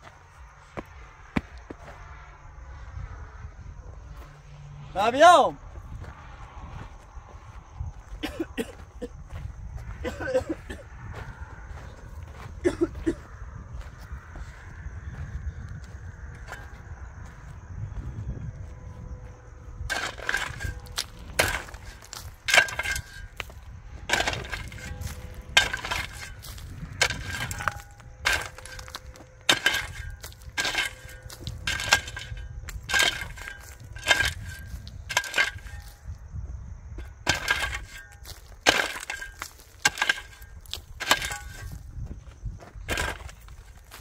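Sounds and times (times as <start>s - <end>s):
metal tool striking stony ground: 19.9s - 36.2s, 37.0s - 44.0s.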